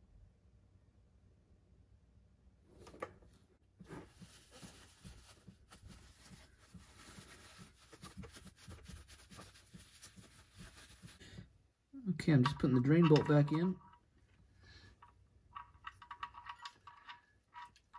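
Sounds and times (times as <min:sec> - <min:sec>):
paper towel crinkling: 0:03.8 - 0:11.4.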